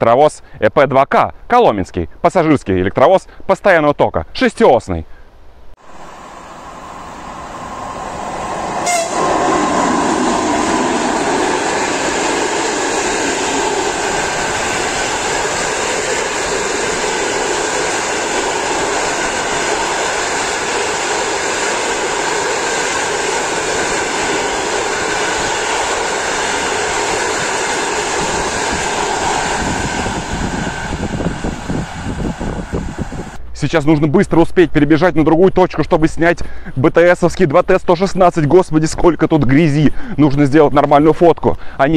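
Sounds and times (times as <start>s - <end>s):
electric locomotive passing: 5.8s - 33.4s
train wheels rolling on rails: 6.0s - 33.4s.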